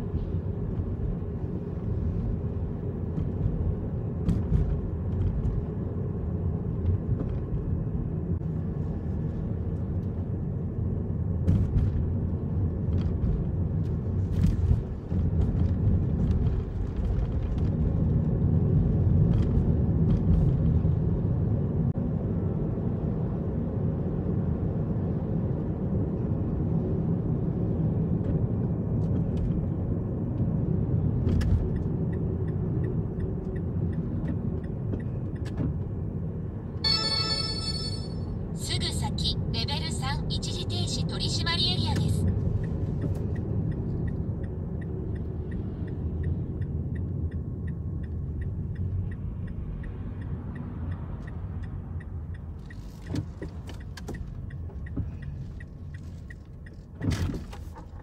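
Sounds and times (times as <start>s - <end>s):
car engine rumble: 0.0s - 58.0s
tyres on road: 0.0s - 58.0s.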